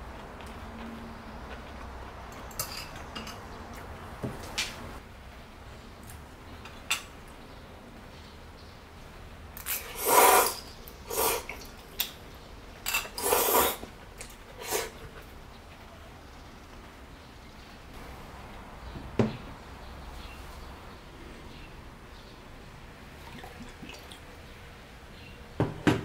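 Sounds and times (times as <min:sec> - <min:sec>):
wet scraping and sloshing in pot: 0:23.1 - 0:24.4.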